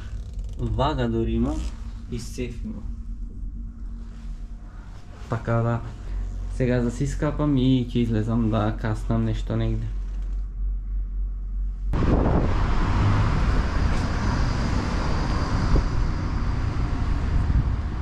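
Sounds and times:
low steady hum: 0:00.0 - 0:18.0
wind on microphone: 0:11.9 - 0:18.0
passing cars: 0:12.0 - 0:18.0.

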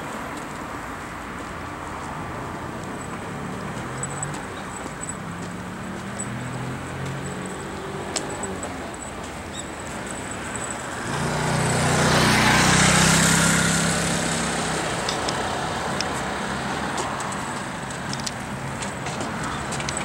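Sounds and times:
motor scooter passing: 0:02.4 - 0:20.0.

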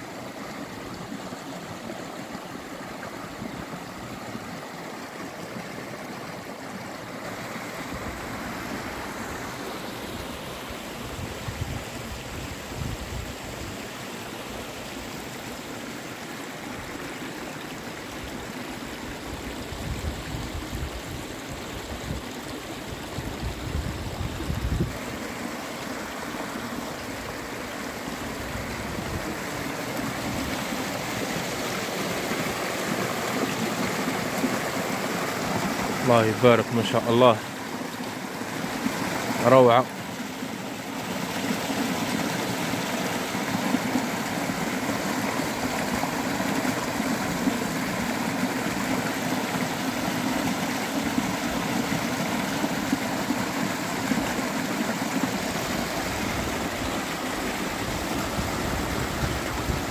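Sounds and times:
stream rushing over rocks: 0:00.0 - 0:59.9.

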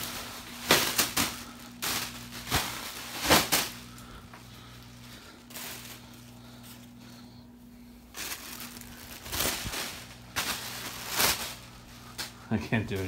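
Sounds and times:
plastic packing crinkling: 0:00.0 - 0:07.2, 0:08.0 - 0:13.0
ceiling fan humming: 0:00.0 - 0:13.0.

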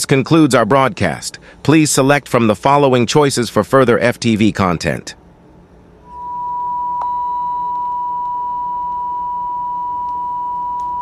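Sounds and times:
high-pitched sine tone: 0:06.0 - 0:11.0.

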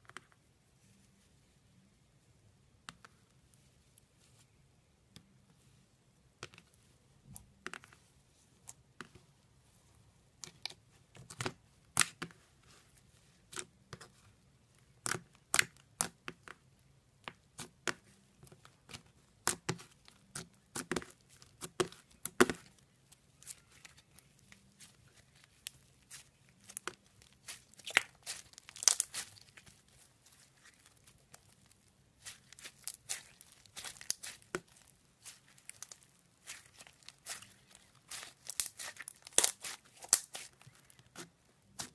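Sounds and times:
beaded slime crackling clicks: 0:27.8 - 0:29.6, 0:32.2 - 0:40.8.

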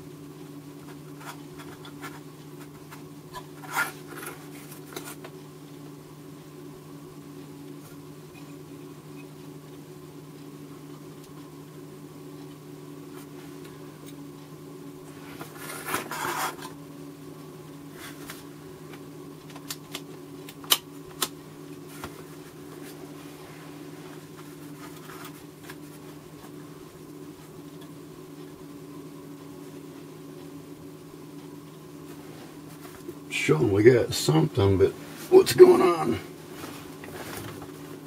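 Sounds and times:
steady low hum: 0:00.0 - 0:38.0
scraping rustle: 0:15.2 - 0:16.7.

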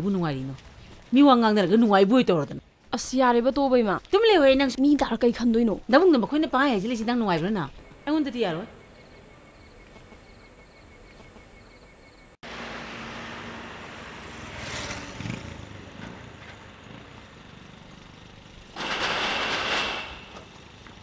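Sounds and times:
faint insect chirping: 0:06.7 - 0:12.4
vehicle rushing past close: 0:12.4 - 0:18.2
passing vehicles hiss: 0:12.4 - 0:20.8.

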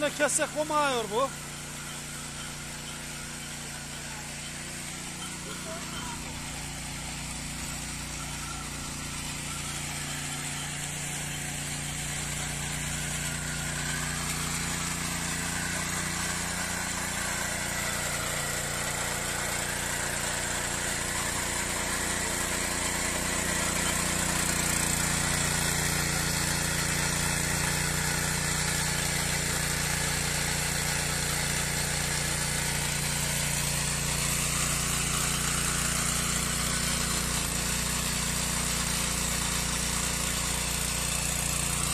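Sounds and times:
tiller engine running under load: 0:00.0 - 0:41.9
tines churning through soil: 0:00.0 - 0:41.9.

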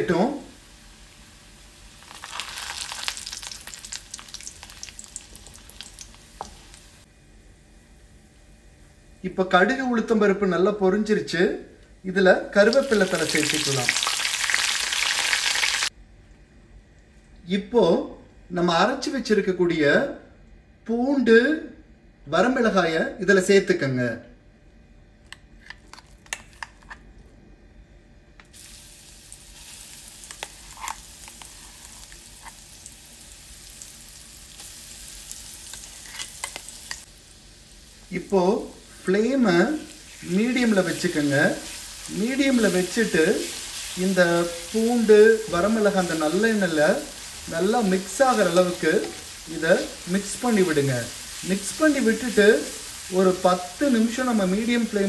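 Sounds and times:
seeds sizzling and popping in oil: 0:00.6 - 0:07.1, 0:12.6 - 0:15.9, 0:28.6 - 0:55.0.

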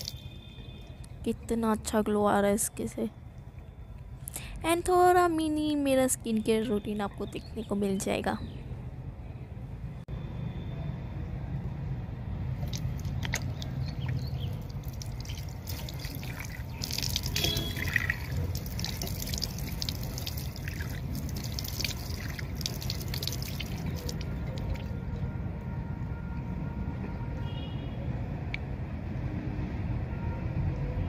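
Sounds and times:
water splashing on face: 0:12.6 - 0:24.9
water running from tap: 0:14.0 - 0:24.4.

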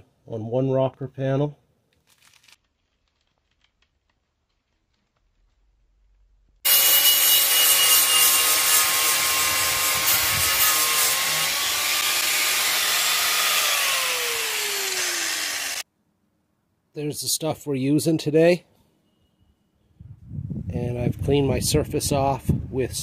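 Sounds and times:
angle grinder grinding metal: 0:06.7 - 0:15.8.

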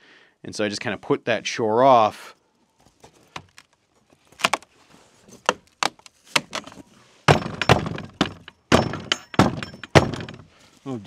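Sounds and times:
wooden door knocks and bangs: 0:07.3 - 0:10.5.

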